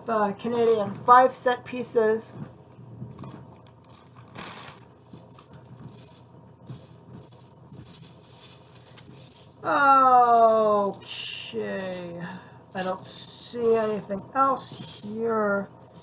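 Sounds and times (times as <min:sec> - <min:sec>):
coins clinking: 0:04.4 - 0:16.0.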